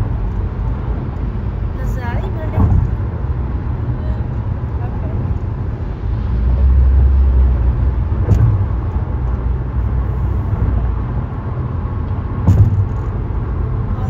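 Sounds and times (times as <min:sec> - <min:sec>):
car road noise rumble: 0:00.0 - 0:14.0
short knocks: 0:08.2 - 0:08.9, 0:12.4 - 0:13.2.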